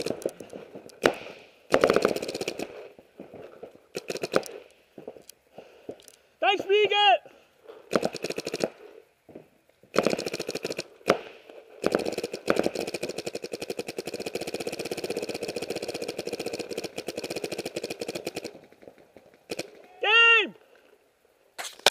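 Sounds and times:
paintball marker firing: 0.0 - 2.7, 4.0 - 4.7, 7.9 - 8.8, 9.9 - 18.6.

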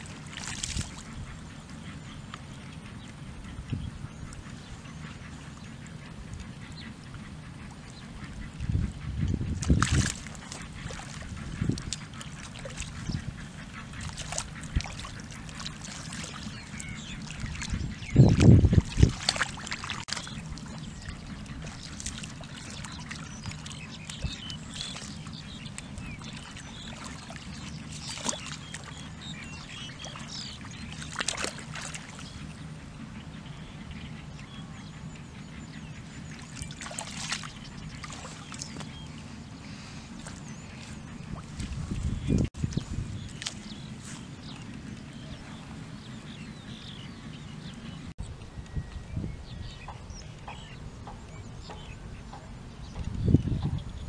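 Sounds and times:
hands sloshing in muddy water: 0.0 - 1.5, 9.5 - 32.5, 36.2 - 45.8
water splashes: 0.0 - 3.5, 7.5 - 32.6, 36.1 - 46.8.

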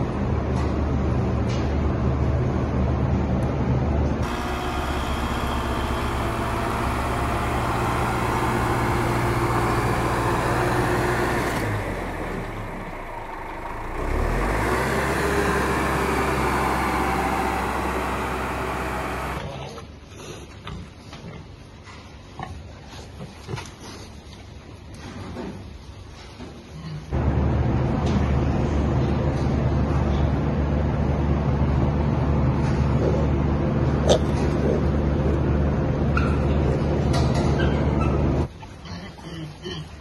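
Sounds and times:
harvester working: 0.0 - 19.7, 27.1 - 38.5
tractor engine running: 4.0 - 19.5, 27.1 - 38.5.

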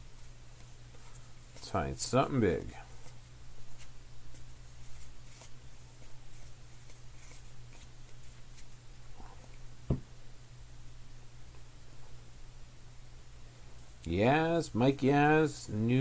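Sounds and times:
cards being flipped through: 2.6 - 8.8
thump: 9.9 - 10.1.

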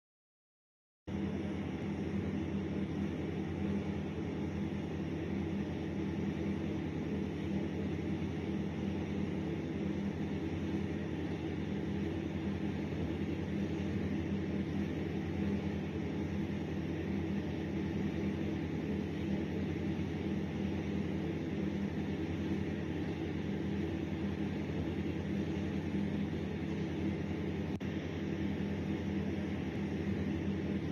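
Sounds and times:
low drone with hiss: 1.1 - 30.9.

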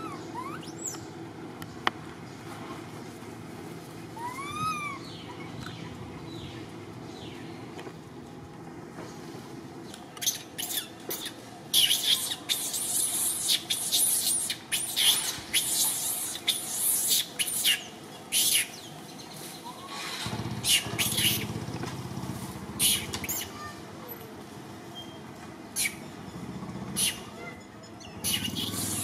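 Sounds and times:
birds chirping: 0.0 - 3.3, 4.2 - 21.7, 22.8 - 23.8, 24.9 - 29.0
low steady rumble: 0.0 - 11.8, 18.8 - 29.0.

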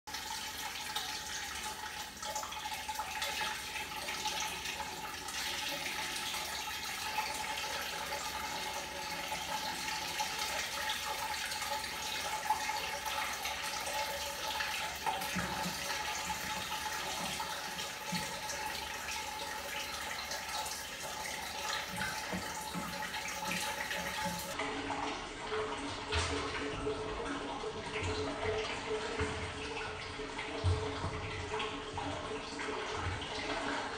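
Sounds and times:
water running from tap: 0.1 - 33.9.

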